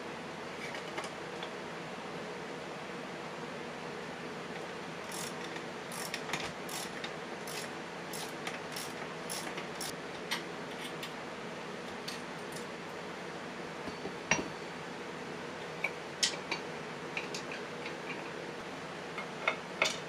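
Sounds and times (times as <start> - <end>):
socket wrench ratchet clicking: 5.1 - 9.9.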